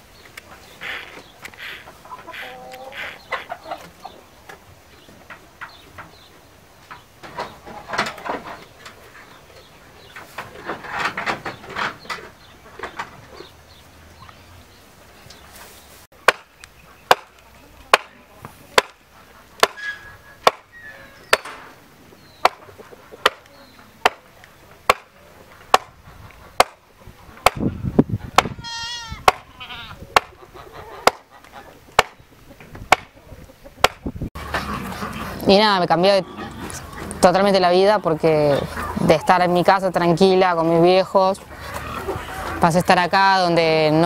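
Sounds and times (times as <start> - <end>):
hen clucking: 0.5 - 14.5, 28.2 - 44.0.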